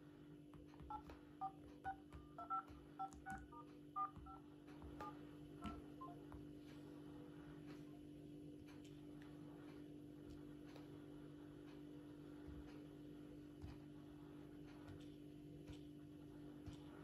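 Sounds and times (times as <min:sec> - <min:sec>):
touch-tone key beeps: 0:00.9 - 0:04.4, 0:05.0 - 0:06.2.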